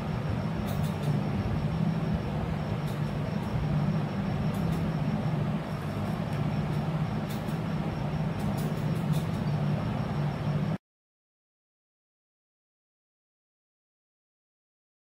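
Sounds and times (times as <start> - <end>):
constant rumbling noise: 0.0 - 10.8
steady low hum: 0.0 - 10.8.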